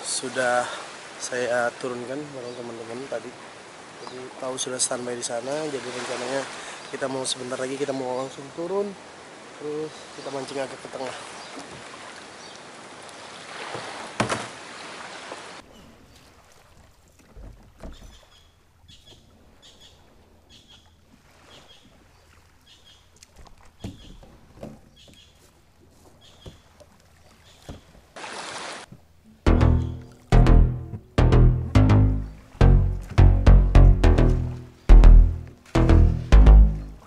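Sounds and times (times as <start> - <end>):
birds chirping: 4.0 - 5.6, 6.3 - 8.6, 17.9 - 23.1, 23.8 - 25.5, 26.2 - 26.7, 29.5 - 37.0
water sloshing: 9.1 - 30.4
hollow knocks on kayak hull: 13.7 - 14.6, 23.8 - 25.2
music: 29.5 - 37.0.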